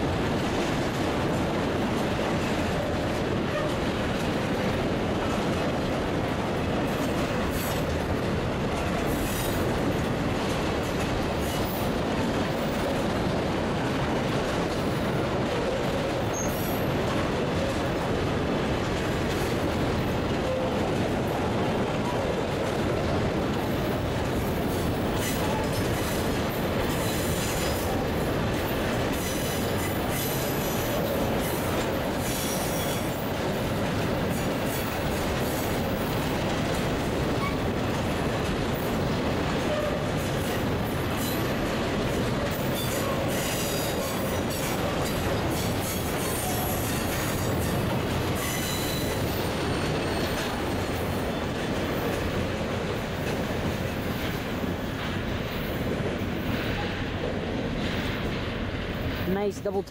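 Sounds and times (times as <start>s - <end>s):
train wheels rumbling on rail: 0.0s - 59.9s
faint wheel squeal: 16.3s - 16.7s, 48.4s - 50.4s.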